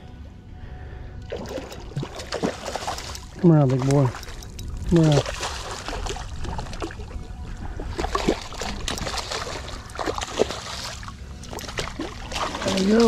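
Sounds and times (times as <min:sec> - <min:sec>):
fish splashing at water surface: 0:08.0 - 0:13.0.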